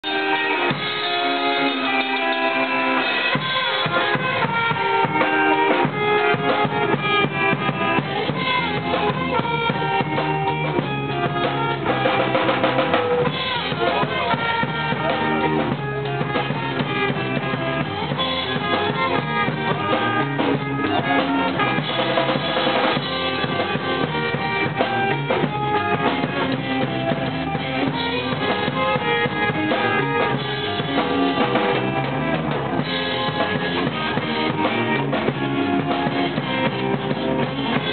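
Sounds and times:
drum kit: 0.0 - 37.9
electric guitar: 0.0 - 37.9
live rock band playing: 0.0 - 37.9.

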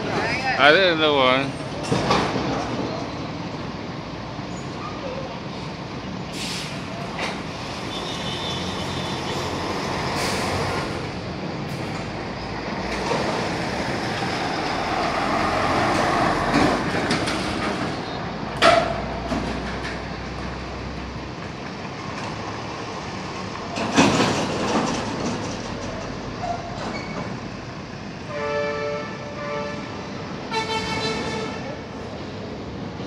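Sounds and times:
truck engine passing by: 0.8 - 28.4.

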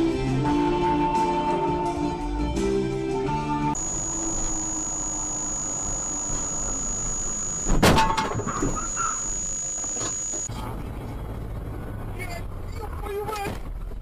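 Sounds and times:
brief squeals: 3.8 - 10.5
road noise with high whine: 3.8 - 14.0
vehicle collision crash: 7.7 - 8.8.

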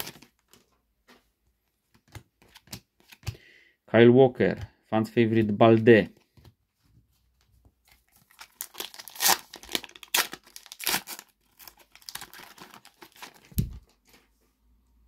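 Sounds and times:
foil packet crinkling and ripping: 0.0 - 0.3, 8.1 - 14.0.

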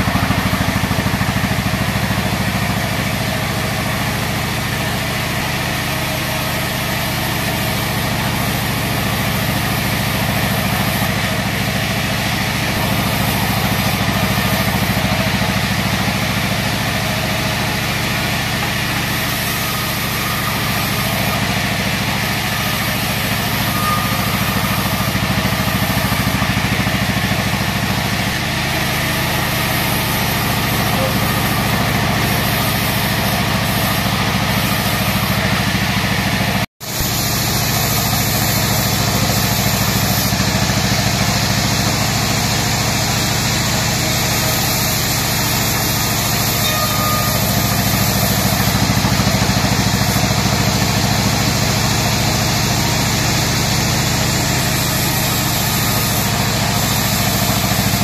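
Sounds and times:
band sawmill droning: 0.0 - 58.0
hiss of saw cutting wood: 0.0 - 58.0.

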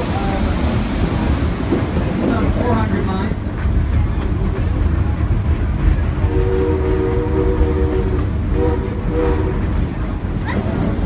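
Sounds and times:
moving train rumble: 0.0 - 11.0
steam locomotive whistle: 6.2 - 9.7.

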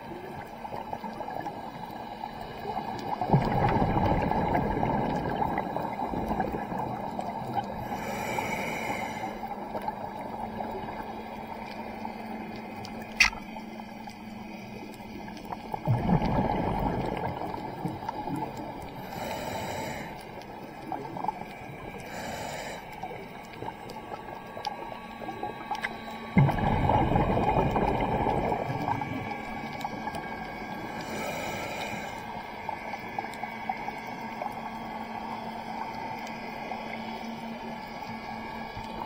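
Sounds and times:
steady crackle: 0.0 - 39.0
rush of exhaled bubbles: 2.5 - 8.0, 15.7 - 19.2, 25.3 - 31.5
diver inhaling through regulator: 7.7 - 9.6, 19.0 - 20.4, 22.0 - 23.2, 30.8 - 32.6.

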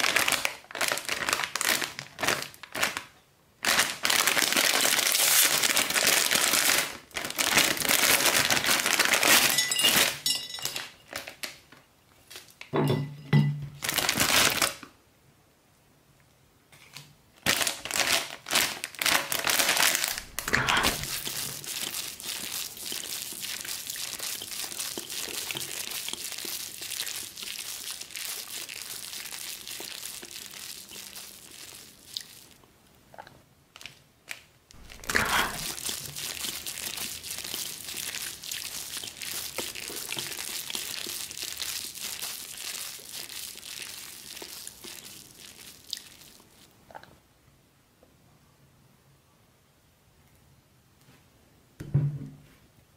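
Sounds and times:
plastic wrapper crinkling: 0.0 - 12.7, 13.8 - 14.9, 17.4 - 32.6, 33.7 - 46.7.

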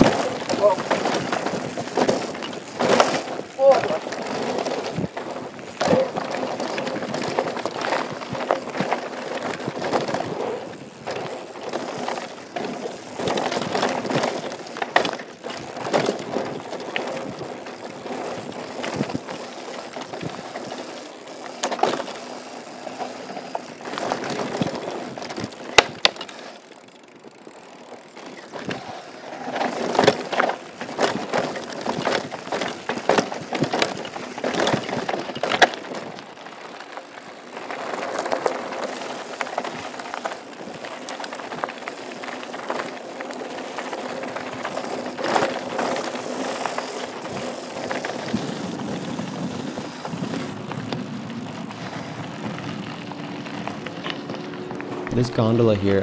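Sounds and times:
bike chain and frame clattering: 0.0 - 55.8
tyres crunching over dirt: 0.0 - 56.0.

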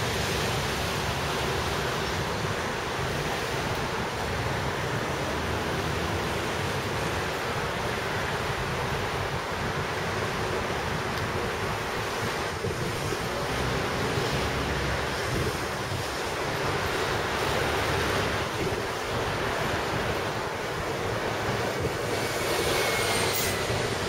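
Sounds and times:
wind on microphone: 0.0 - 24.0.

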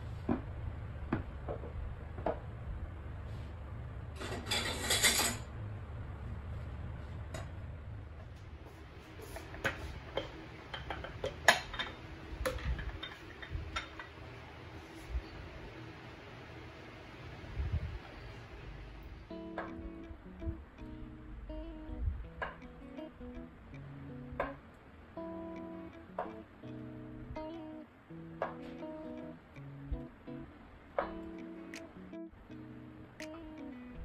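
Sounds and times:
steady low hum: 0.0 - 34.0
kitchen items clicking and knocking: 9.5 - 14.2.

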